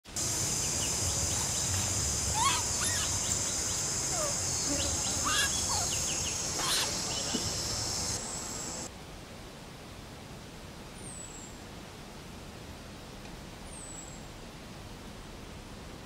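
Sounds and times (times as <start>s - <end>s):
high-pitched insect drone: 0.2s - 8.9s
short chirping bird calls: 0.6s - 8.9s.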